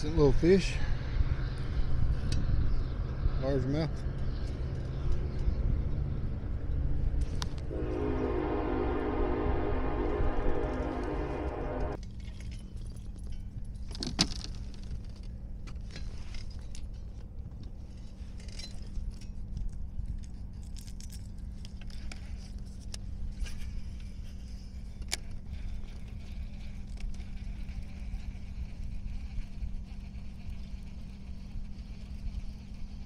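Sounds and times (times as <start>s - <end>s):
steady low rumble: 0.0s - 13.9s.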